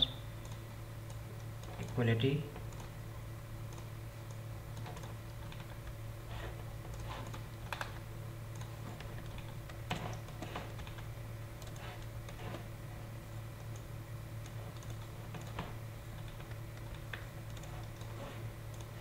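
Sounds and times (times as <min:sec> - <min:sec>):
keyboard and mouse clicks: 0:00.4 - 0:02.0, 0:03.7 - 0:05.9, 0:06.8 - 0:12.6, 0:13.6 - 0:19.0.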